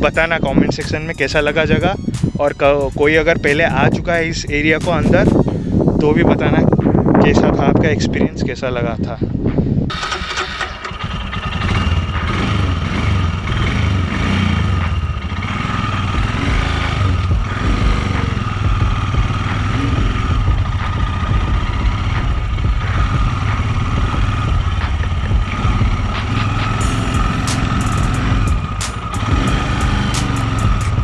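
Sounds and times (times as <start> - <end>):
motorcycle engine running: 0.0 - 2.0, 9.9 - 31.0.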